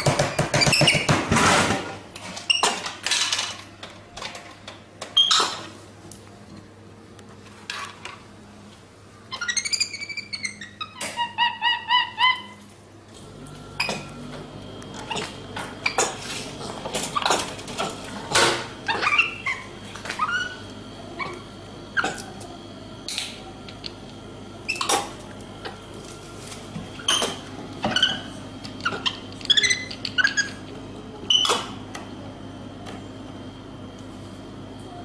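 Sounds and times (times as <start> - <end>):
animal yelping and squeaking: 9.3 - 12.7, 18.8 - 20.6, 27.0 - 30.6
steady low hum: 12.5 - 35.0.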